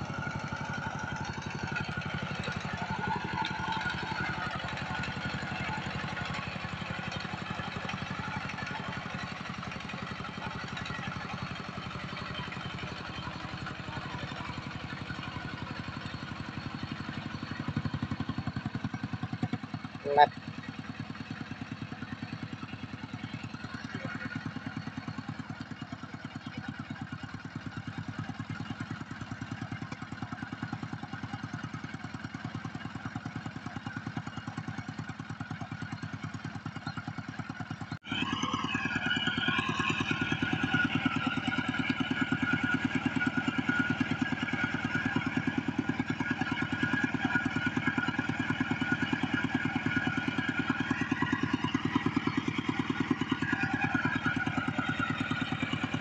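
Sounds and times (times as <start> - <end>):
tractor diesel engine chugging: 0.0 - 56.0.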